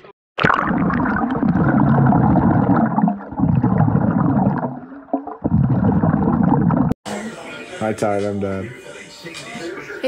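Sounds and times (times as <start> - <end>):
underwater rushing and bubbles: 0.4 - 7.0.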